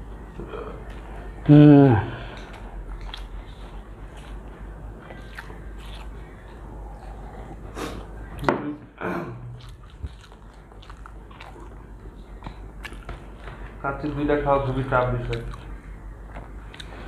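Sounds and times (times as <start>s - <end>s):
people chewing food: 0.0s - 17.0s.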